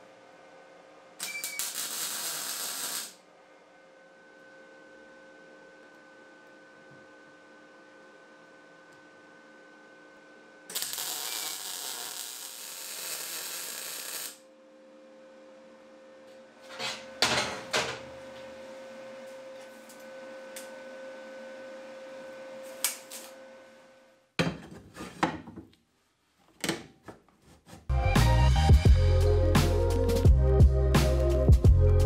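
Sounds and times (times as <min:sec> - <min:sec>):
welder arc crackling: 0:01.2 - 0:03.2, 0:10.7 - 0:14.4, 0:22.7 - 0:23.4.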